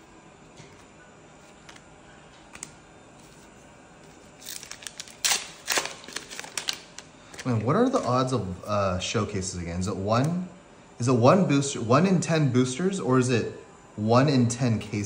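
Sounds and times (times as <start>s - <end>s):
foil wrapper crinkling and tearing: 4.4s - 8.3s.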